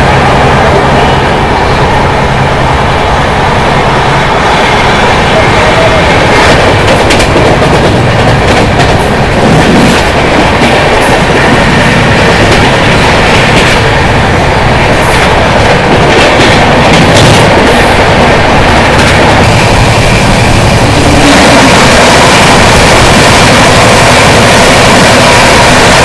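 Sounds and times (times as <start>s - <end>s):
train wheel rail and wind rush: 0.0s - 26.0s.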